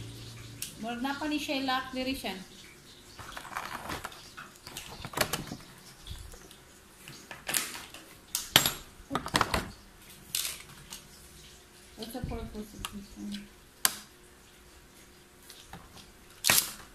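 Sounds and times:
hard plastic clicking and clattering: 3.2 - 5.7.

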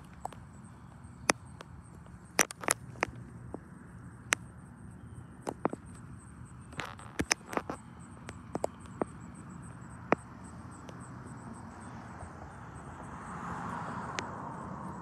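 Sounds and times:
sharp ticks and slaps: 0.0 - 4.6, 5.4 - 11.4
high pulsing insect chirp: 0.0 - 15.0.

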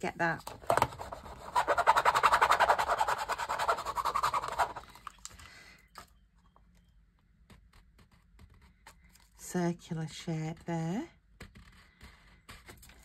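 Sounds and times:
plastic lid scrubbing ink pad: 0.6 - 5.0.

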